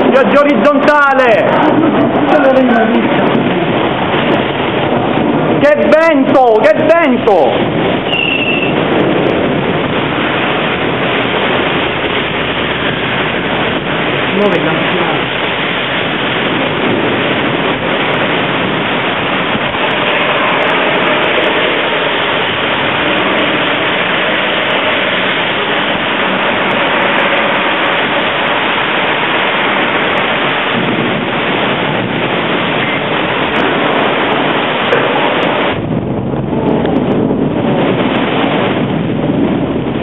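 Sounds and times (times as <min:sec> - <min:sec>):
strong wind: 0:00.0 - 0:40.0
torrential rain: 0:00.0 - 0:40.0.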